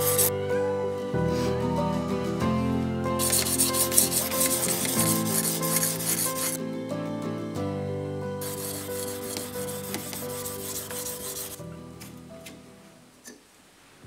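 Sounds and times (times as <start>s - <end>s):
background music: 0.0s - 13.2s
sharpening stone rasping on knife: 3.2s - 6.6s, 8.4s - 11.6s.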